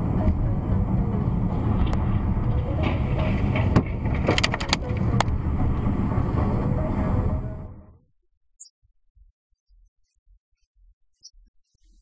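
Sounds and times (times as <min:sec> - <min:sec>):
car cabin road and engine rumble: 0:00.0 - 0:08.0.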